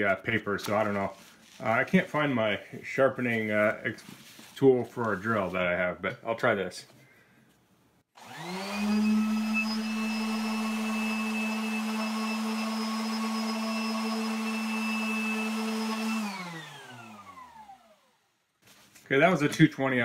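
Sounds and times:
orbit sander whining: 0:08.2 - 0:18.3.

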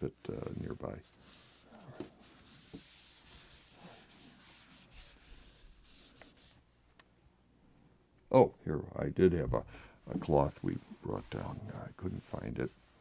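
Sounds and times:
napkin wiping a tabletop: 0:00.0 - 0:06.7, 0:10.1 - 0:13.0.

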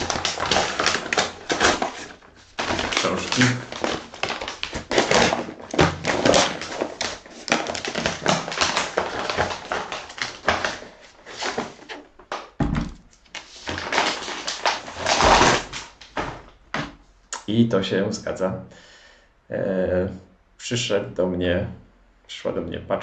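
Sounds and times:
paper crinkling and tearing: 0:00.0 - 0:12.1, 0:13.1 - 0:16.3.

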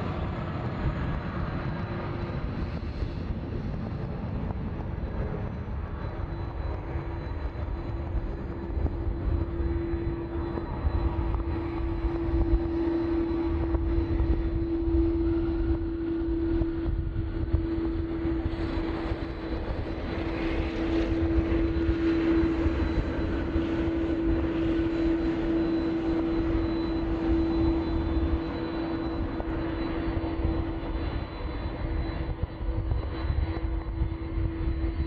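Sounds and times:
jet engines droning: 0:00.0 - 0:35.0.

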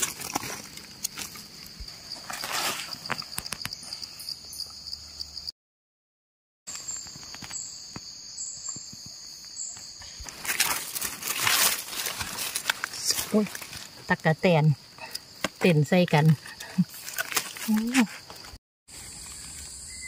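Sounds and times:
forest insects droning: 0:00.0 - 0:05.5, 0:06.7 - 0:20.0
footsteps on dry leaf litter: 0:10.3 - 0:14.0.

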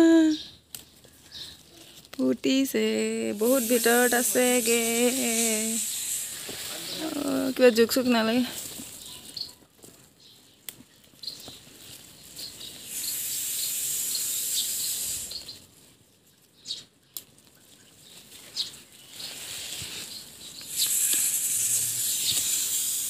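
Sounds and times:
leaves rustling: 0:00.2 - 0:23.0
okra pods snapping off: 0:00.6 - 0:01.2
steady high hiss: 0:02.5 - 0:09.1, 0:12.2 - 0:15.7, 0:19.1 - 0:23.0
small high chirps: 0:03.0 - 0:15.7, 0:16.3 - 0:23.0.

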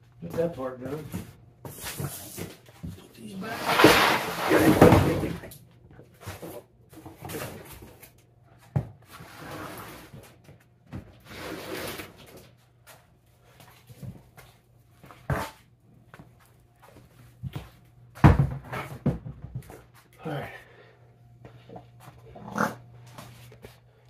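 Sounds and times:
faint low hum: 0:12.2 - 0:24.0.

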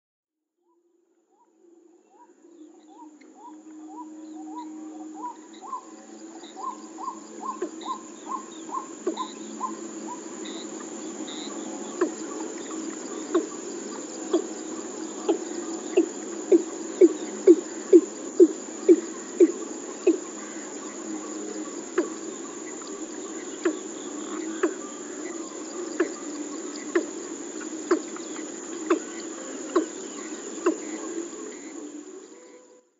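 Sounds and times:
bird calling deep hollow notes: 0:02.1 - 0:13.6.

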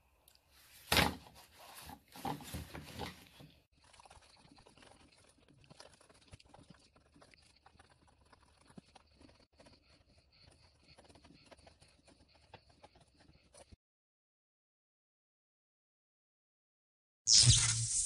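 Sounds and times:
rustling and scraping: 0:00.7 - 0:03.6
pencil scratching on paper: 0:03.9 - 0:13.8.

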